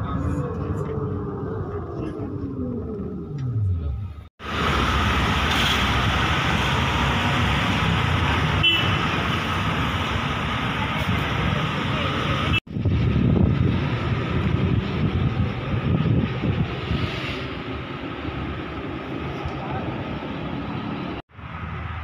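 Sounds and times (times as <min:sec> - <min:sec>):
uneven rumbling noise: 0:00.0 - 0:05.4
road and engine noise in car: 0:00.0 - 0:22.0.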